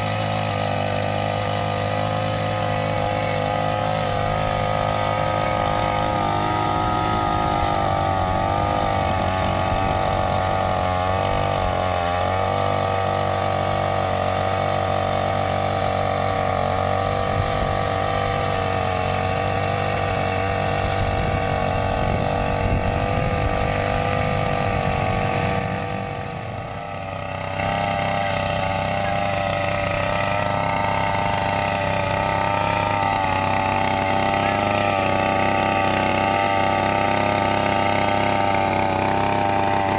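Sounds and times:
small petrol engine running: 0.0s - 39.9s.

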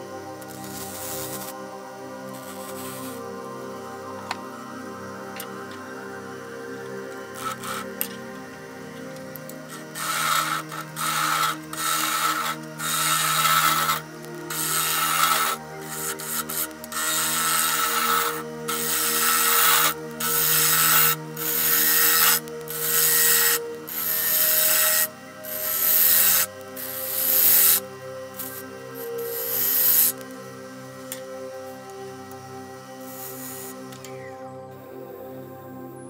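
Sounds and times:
gouge cutting wood on lathe: 2.3s - 3.3s, 7.2s - 30.3s, 31.0s - 34.1s.

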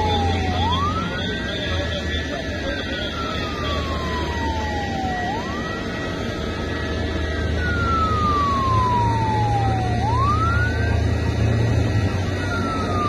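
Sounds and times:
emergency vehicle siren wailing: 0.0s - 13.0s.

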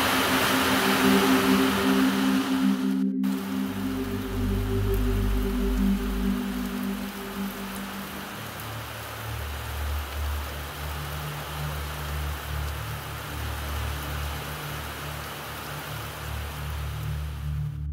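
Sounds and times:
low steady hum: 0.0s - 8.8s
steady rain falling: 0.0s - 17.9s.

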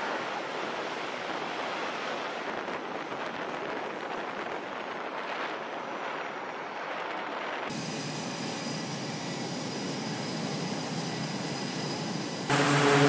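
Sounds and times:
jet engines roaring in afterburner: 7.7s - 13.0s.

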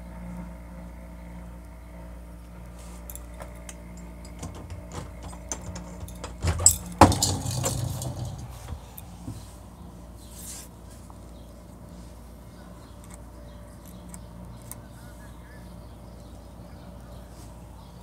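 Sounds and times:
low hum: 0.0s - 18.0s
phone handling clicks and rattles: 3.1s - 9.4s.

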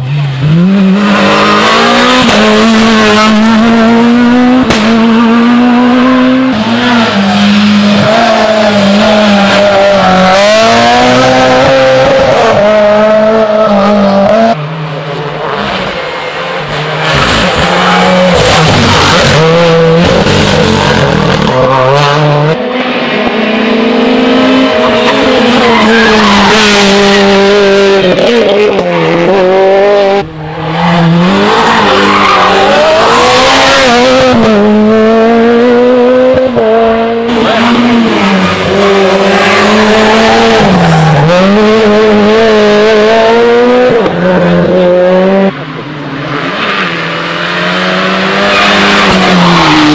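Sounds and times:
rally car engines revving: 0.0s - 49.9s.

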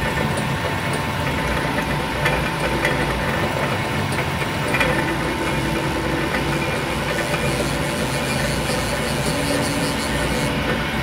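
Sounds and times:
mill motor humming with thin whine: 0.0s - 11.0s
drill bit cutting metal: 4.6s - 11.0s.

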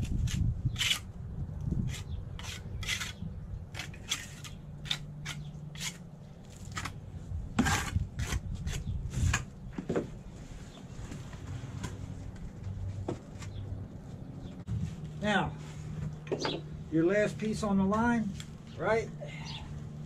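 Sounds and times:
trowel scraping on stone: 0.0s - 1.1s, 1.8s - 7.0s, 7.6s - 9.5s.

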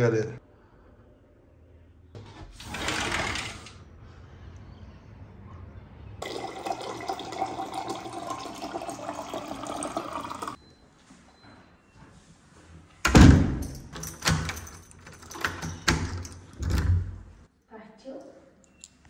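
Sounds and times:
water pouring into glass over ice: 6.2s - 10.6s.

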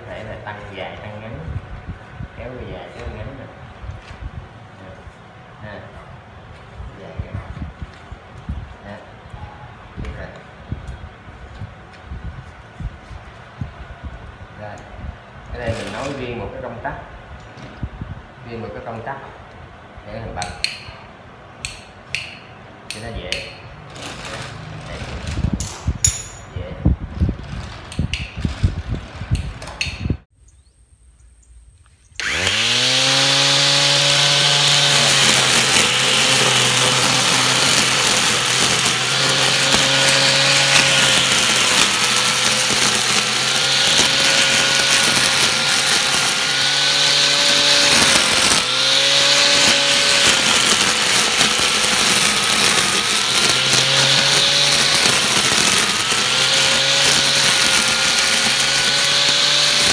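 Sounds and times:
electric mower motor whining: 15.5s - 16.6s, 32.2s - 59.9s.

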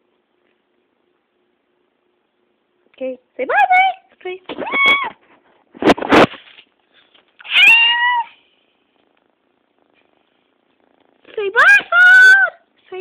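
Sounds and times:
scratchy noise: 4.5s - 6.7s
cat meowing: 7.4s - 8.4s.

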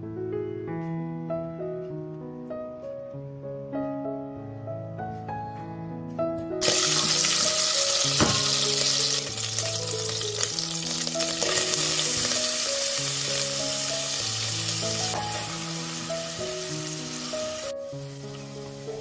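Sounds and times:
butter sizzling in hot oil: 6.6s - 19.0s.

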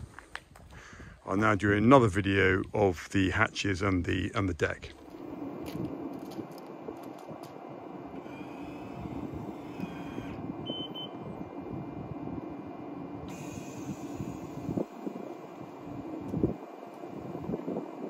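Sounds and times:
electric motor hum: 4.9s - 18.0s
short high beeps: 10.7s - 11.2s.

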